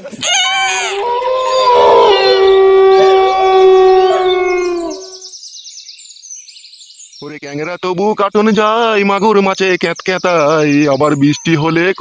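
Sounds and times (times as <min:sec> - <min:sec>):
dog howling: 0:00.0 - 0:05.3
wavering howls: 0:00.1 - 0:05.3
high bird chirps: 0:00.2 - 0:08.2.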